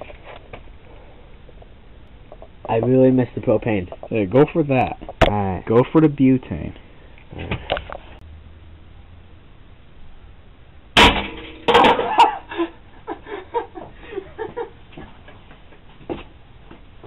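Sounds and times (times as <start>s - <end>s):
pellet rifle shot: 11.0s - 11.9s.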